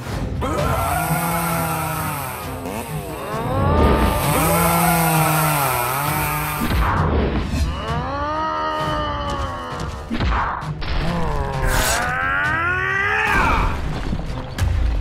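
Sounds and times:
cartoon groaning cries: 0:00.4 - 0:06.7, 0:07.7 - 0:09.9, 0:11.2 - 0:13.7.

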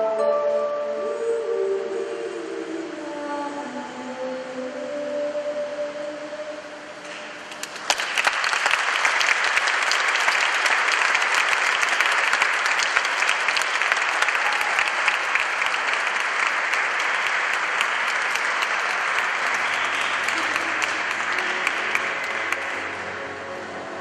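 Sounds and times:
audience applause: 0:07.5 - 0:23.4.

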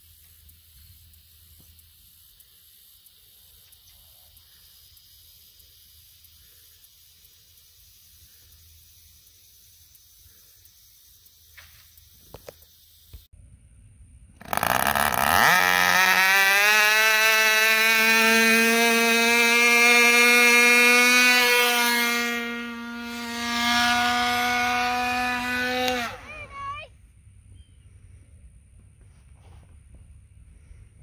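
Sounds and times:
faint outdoor hiss: 0:00.0 - 0:16.1
model airplane engine buzzing: 0:14.3 - 0:26.8.

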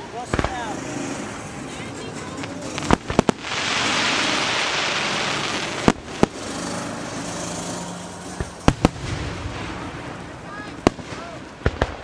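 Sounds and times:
fireworks hissing: 0:00.0 - 0:12.0
firework shells bursting: 0:00.2 - 0:01.6, 0:02.4 - 0:12.0.

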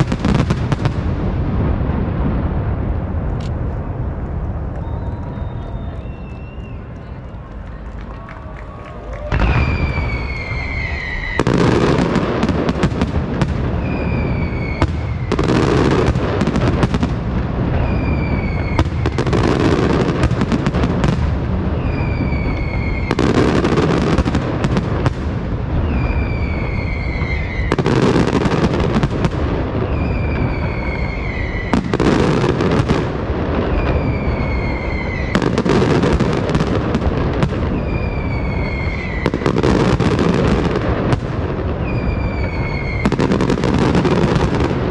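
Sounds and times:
fireworks booming and crackling: 0:00.0 - 0:44.9
falling whistle: 0:04.7 - 0:07.4, 0:08.8 - 0:11.6, 0:13.8 - 0:15.4, 0:17.8 - 0:18.8, 0:21.8 - 0:23.4, 0:25.8 - 0:27.8, 0:29.9 - 0:31.8, 0:33.8 - 0:35.3, 0:37.8 - 0:39.4, 0:41.8 - 0:43.2.

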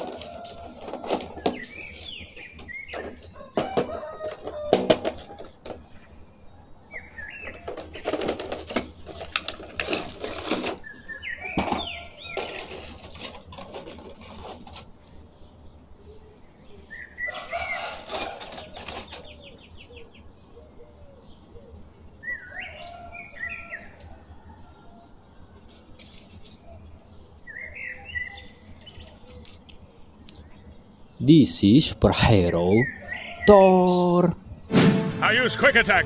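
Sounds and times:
birds chirping: 0:00.0 - 0:36.0
plastic packaging crinkling: 0:07.7 - 0:11.0, 0:12.3 - 0:15.2, 0:17.8 - 0:19.4.

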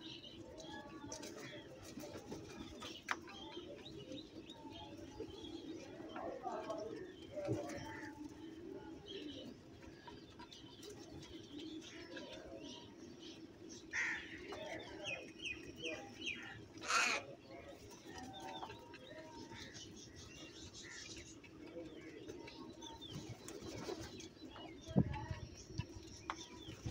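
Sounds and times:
crows cawing: 0:13.9 - 0:14.4, 0:16.8 - 0:17.3.

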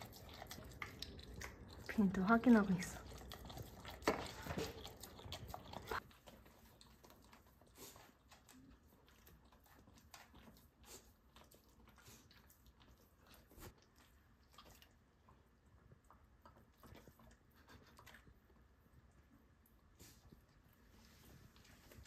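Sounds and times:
dog licking metal spoon: 0:00.0 - 0:15.4.

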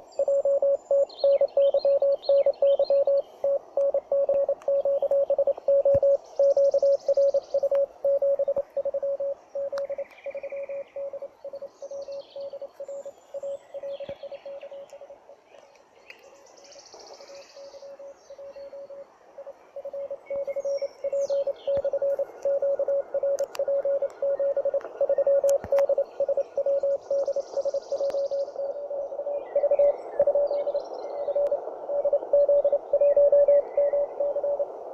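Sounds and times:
morse code tone: 0:00.0 - 0:14.8, 0:17.9 - 0:29.1
birds chirping: 0:00.0 - 0:34.8
receiver hiss: 0:00.0 - 0:34.9.

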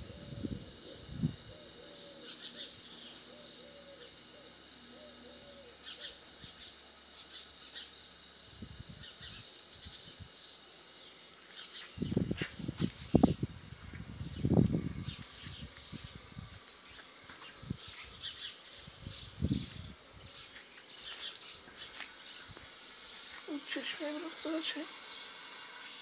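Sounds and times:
bird giving low calls: 0:00.0 - 0:06.2
high insect drone: 0:00.0 - 0:26.0
small birds chirping: 0:00.0 - 0:26.0.

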